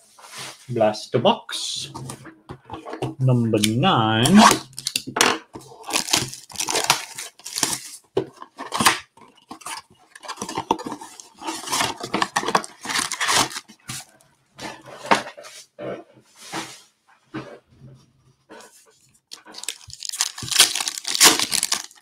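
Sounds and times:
foil packs rustling: 5.6s - 14.0s, 19.4s - 22.0s
cardboard ripping: 5.8s - 8.0s, 8.6s - 14.0s, 19.4s - 22.0s.

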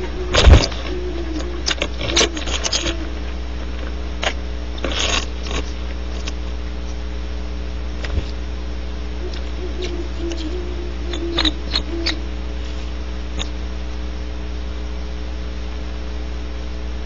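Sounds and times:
owl scratchy clicks and scrapes: 0.0s - 7.0s, 8.0s - 8.4s, 9.2s - 13.6s
electrical hum: 0.0s - 17.0s.

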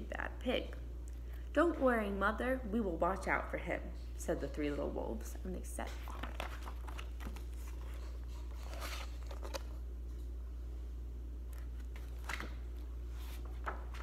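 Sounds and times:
steady low hum: 0.0s - 14.0s
book pages rustling: 5.8s - 10.3s, 11.5s - 14.0s.

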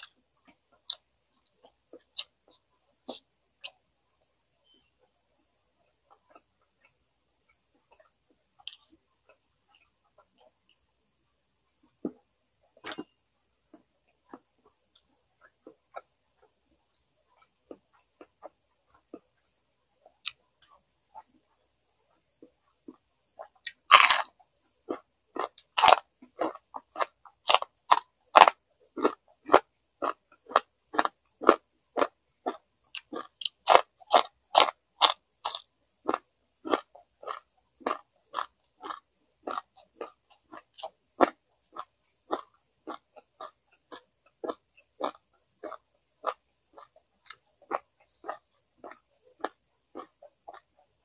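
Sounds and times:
crunchy chewing: 0.0s - 3.9s, 5.8s - 10.9s, 11.8s - 51.0s
person biting crunchy food: 23.9s - 24.3s.

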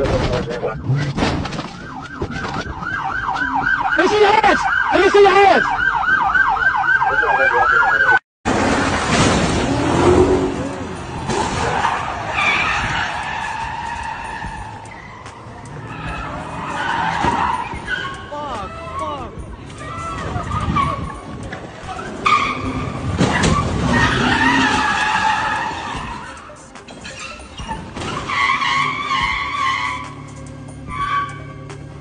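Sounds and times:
police siren yelping: 0.4s - 8.2s
tyres squealing: 10.1s - 31.9s.

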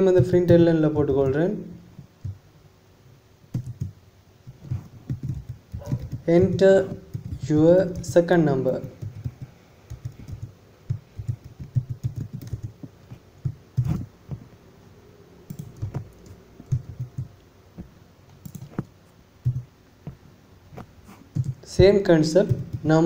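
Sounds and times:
typing on computer keyboard: 2.2s - 2.4s, 3.5s - 14.1s, 15.5s - 17.3s, 18.4s - 19.7s, 21.3s - 21.7s, 22.3s - 23.0s.

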